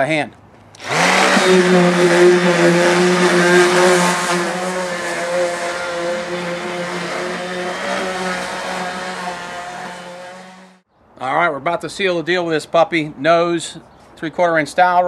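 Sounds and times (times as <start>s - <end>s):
power sander humming on wood: 0.8s - 10.8s.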